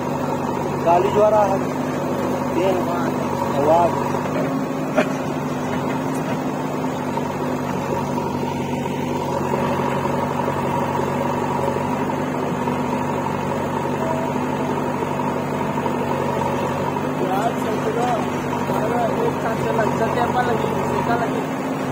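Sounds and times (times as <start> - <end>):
diesel engines running: 0.0 - 21.9.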